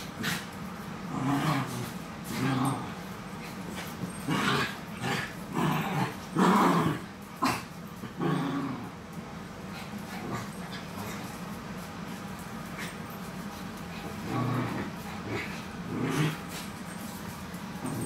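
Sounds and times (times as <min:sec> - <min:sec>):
small dogs growling: 0:00.0 - 0:09.1, 0:09.7 - 0:11.4, 0:12.7 - 0:18.0.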